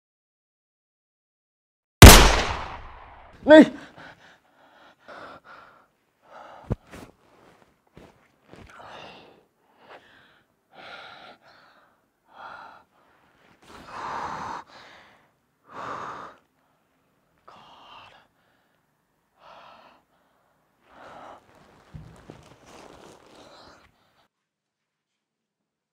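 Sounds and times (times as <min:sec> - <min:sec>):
man gasping and breathing heavily: 0:03.4 - 0:07.0.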